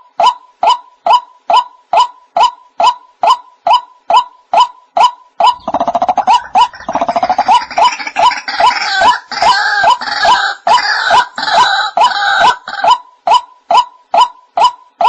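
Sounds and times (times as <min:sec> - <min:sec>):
harsh grunting calls: 0:05.5 - 0:12.8
rapid croaking: 0:05.5 - 0:12.8.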